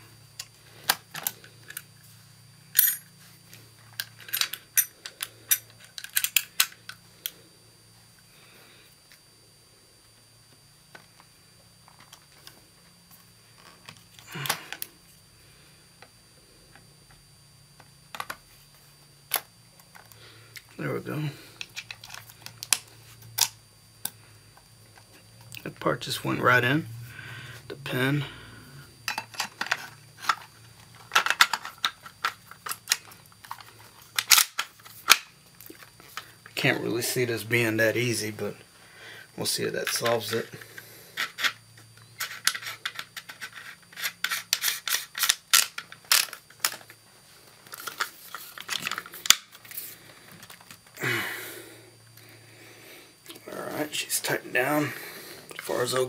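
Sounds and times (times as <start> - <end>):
shotgun parts clicking and clacking: 4.0 - 7.0, 31.0 - 35.3, 42.2 - 46.9
small metal clicks and scrapes: 39.9 - 46.9.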